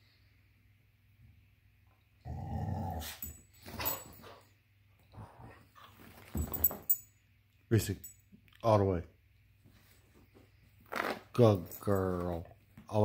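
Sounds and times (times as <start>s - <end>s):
dog growling: 2.2s - 3.2s.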